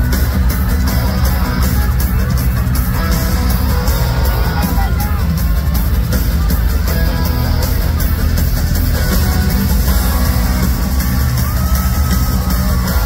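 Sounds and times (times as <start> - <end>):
live rock band playing: 0.0 - 13.0.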